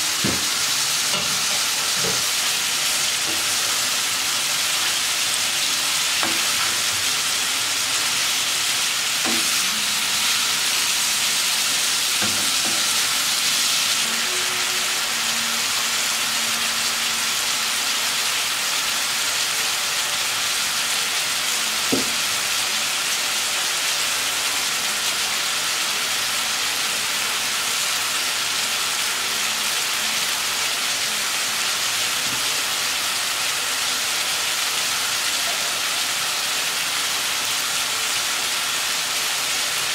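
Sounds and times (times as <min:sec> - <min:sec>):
food sizzling in frying pan: 0:00.0 - 0:39.9.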